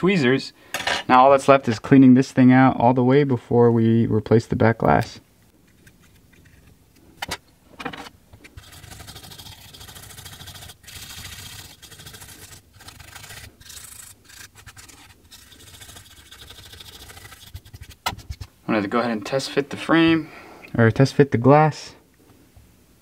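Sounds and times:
brush scrubbing phone frame: 8.5s - 18.5s.

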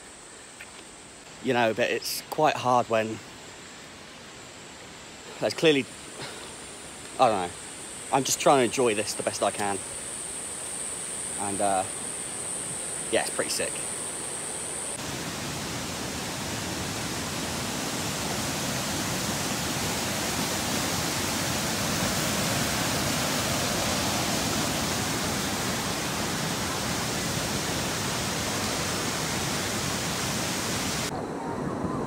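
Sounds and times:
water rushing over boulders: 14.9s - 31.1s.

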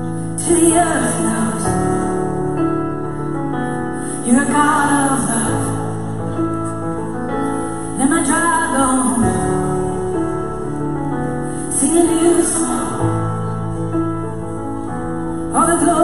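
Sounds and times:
person singing: 0.0s - 6.7s, 11.4s - 13.9s.

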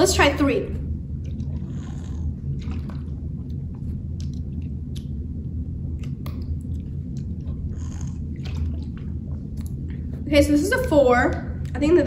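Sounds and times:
steady low hum: 0.0s - 12.0s
sipping and swallowing: 1.1s - 10.2s.

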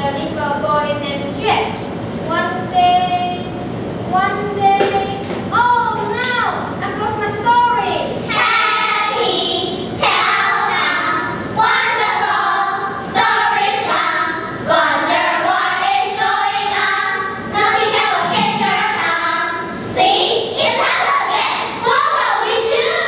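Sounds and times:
children singing together: 8.3s - 23.0s.

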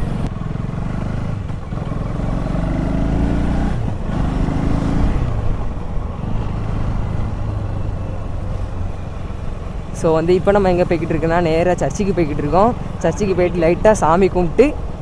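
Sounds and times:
motorcycle engine accelerating: 0.0s - 10.0s
wind and road rumble: 0.0s - 15.0s.

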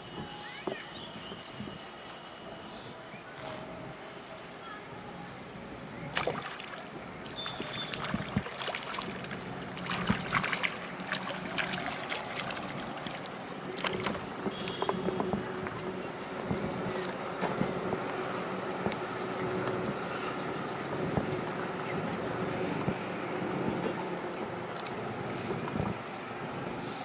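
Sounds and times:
fish splashing and thrashing: 6.1s - 15.2s.

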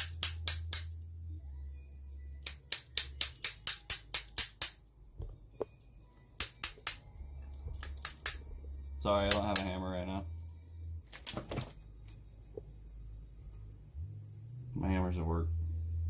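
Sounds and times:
hand tool tapping on metal: 2.4s - 5.8s, 9.3s - 9.8s.

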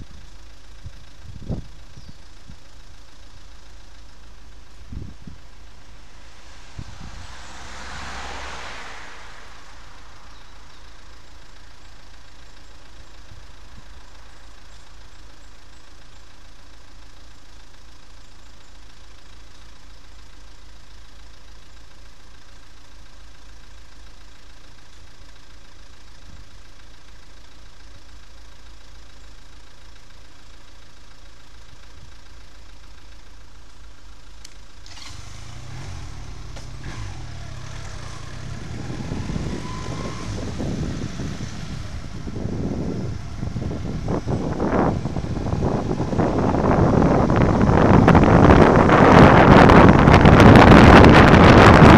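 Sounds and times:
motorcycle engine at low revs: 0.0s - 51.9s
wind rush: 6.1s - 10.0s, 38.4s - 51.9s.

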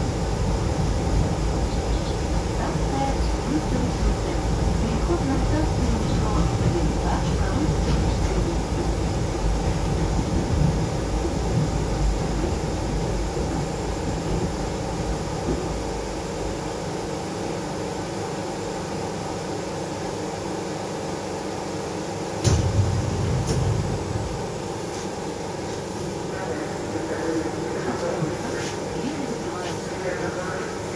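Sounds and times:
steady hum: 0.0s - 30.9s
train running rumble: 0.0s - 30.9s
sudden clunk: 22.4s - 24.0s.

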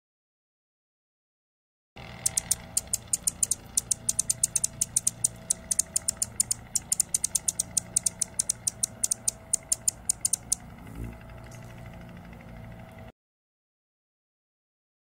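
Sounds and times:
hummingbird ticking calls: 2.0s - 11.8s.

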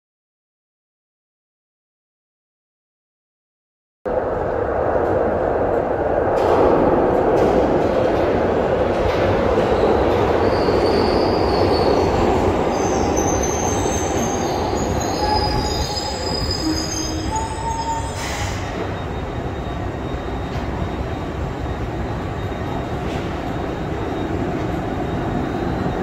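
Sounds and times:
train running and braking: 4.1s - 26.0s
wheels squealing: 9.6s - 26.0s.

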